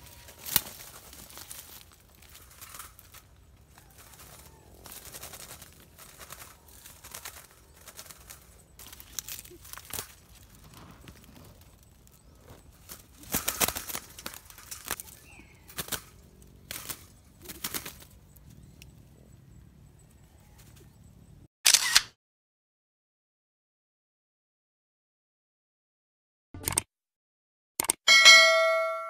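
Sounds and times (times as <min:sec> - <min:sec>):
rustling through brush: 0:00.0 - 0:18.9
wire-mesh cage trap clattering: 0:00.1 - 0:18.3.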